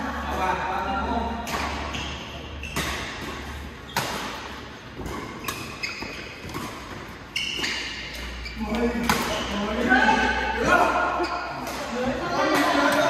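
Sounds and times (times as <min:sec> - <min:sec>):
racket hitting shuttlecock: 0:01.3 - 0:13.0
shoe squeaks on court: 0:01.8 - 0:04.0, 0:05.0 - 0:09.6.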